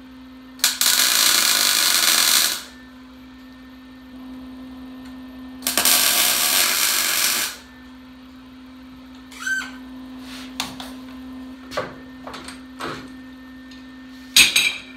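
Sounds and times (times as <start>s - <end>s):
welder arc hiss: 0.6s - 2.8s, 5.6s - 7.7s.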